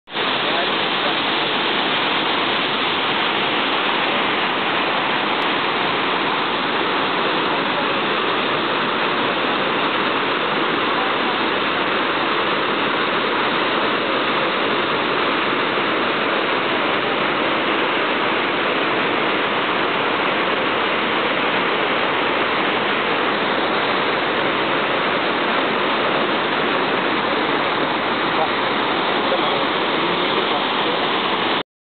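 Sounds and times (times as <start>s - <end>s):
waterfall rushing: 0.1s - 31.6s.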